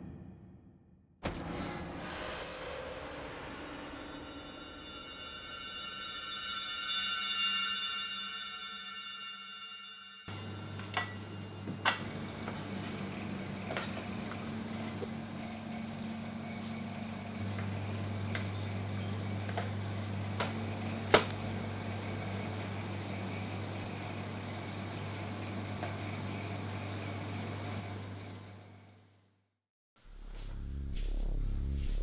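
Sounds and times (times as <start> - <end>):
steady low hum: 10.3 - 29.0, 30.0 - 32.0.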